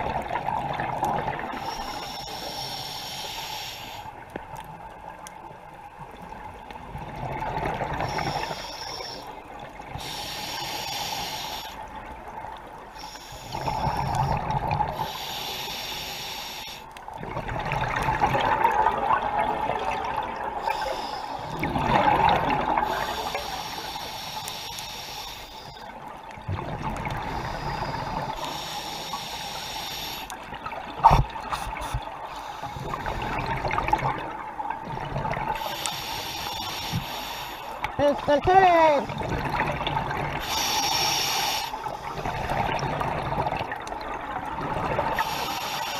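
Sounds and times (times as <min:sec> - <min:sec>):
hissing regulator inhales: 0:01.6 - 0:04.2, 0:08.0 - 0:09.4, 0:10.0 - 0:11.8, 0:13.0 - 0:14.4, 0:15.0 - 0:17.0, 0:20.6 - 0:21.7, 0:22.8 - 0:25.9, 0:27.3 - 0:30.4, 0:35.6 - 0:37.8, 0:40.4 - 0:42.3, 0:45.2 - 0:45.9.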